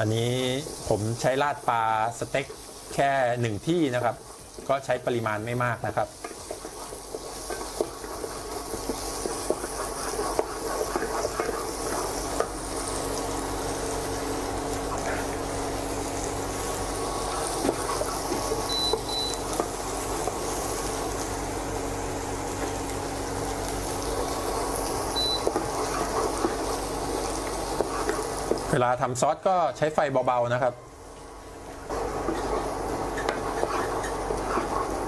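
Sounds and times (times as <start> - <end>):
garlic and onion sizzling in butter: 0.0 - 35.0
wooden spatula scraping pan: 6.2 - 12.5, 32.2 - 35.0.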